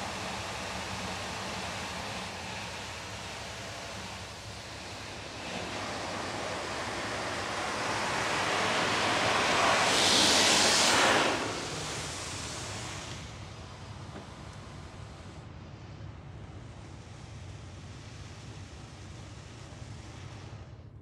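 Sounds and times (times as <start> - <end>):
water spray hitting car: 0.0 - 14.4.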